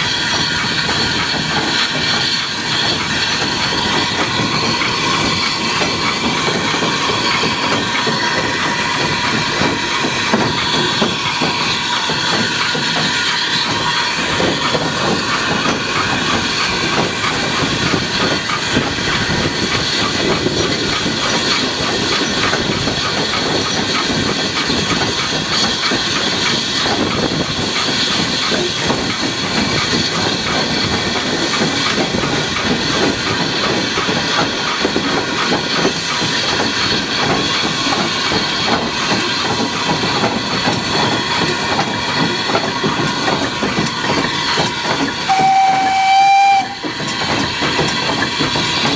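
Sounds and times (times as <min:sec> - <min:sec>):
steam hissing and exhaust beats: 0:00.0 - 0:48.9
train wheels clattering on rails: 0:00.0 - 0:48.9.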